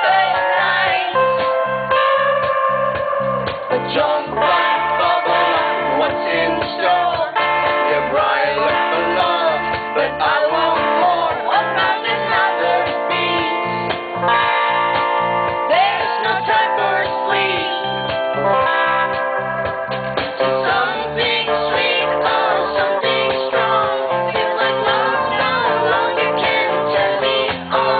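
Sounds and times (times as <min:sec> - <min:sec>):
woman singing: 0:00.0 - 0:01.6, 0:03.8 - 0:07.4, 0:10.2 - 0:13.7, 0:15.7 - 0:18.0, 0:20.6 - 0:27.9
guitar: 0:00.0 - 0:27.9
pulsing bass beat: 0:00.0 - 0:27.9.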